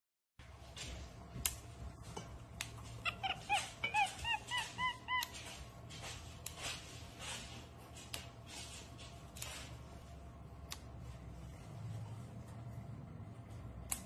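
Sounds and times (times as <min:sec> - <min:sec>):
monkey chirping: 0:02.9 - 0:05.6.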